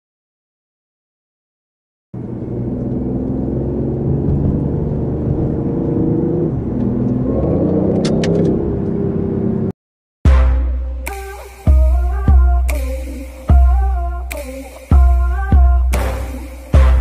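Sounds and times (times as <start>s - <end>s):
car engine running: 2.2s - 9.7s.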